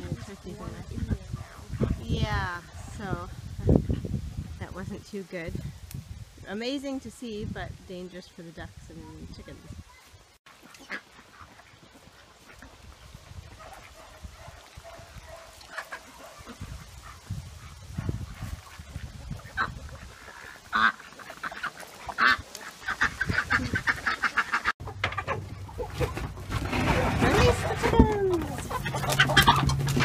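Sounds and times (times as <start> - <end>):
ducks quacking: 10.5 - 12.9, 15.6 - 26.5, 27.2 - 30.0.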